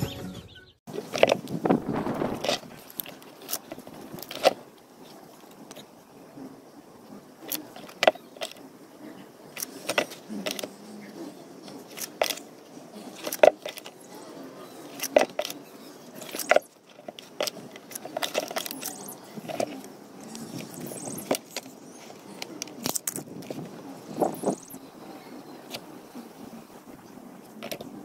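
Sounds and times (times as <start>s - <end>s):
faint rustling: 1.0s - 6.0s.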